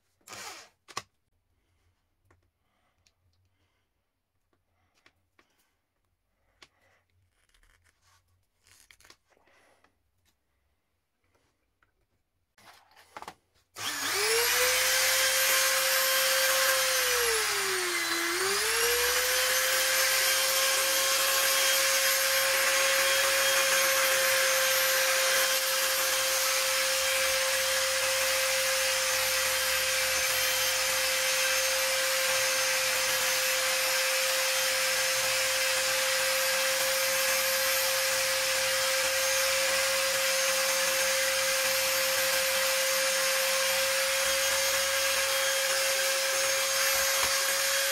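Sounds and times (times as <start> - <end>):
electric drill motor whine: 0.3 - 0.7, 13.8 - 47.9.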